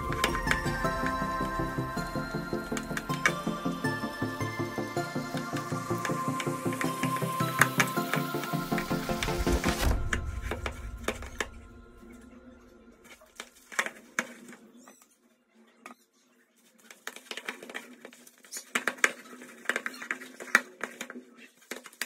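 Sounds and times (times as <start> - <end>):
background music: 0.0 - 13.4.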